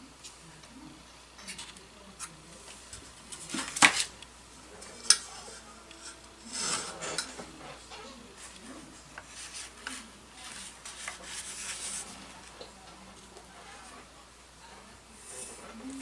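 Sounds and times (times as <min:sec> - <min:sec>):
metal sliding and rubbing: 0:04.8 - 0:12.5, 0:13.4 - 0:14.1.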